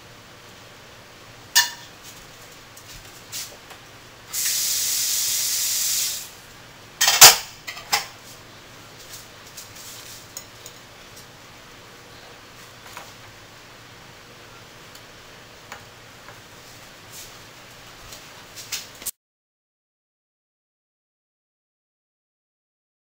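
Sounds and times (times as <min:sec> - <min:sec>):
spray hiss: 0:04.3 - 0:06.4.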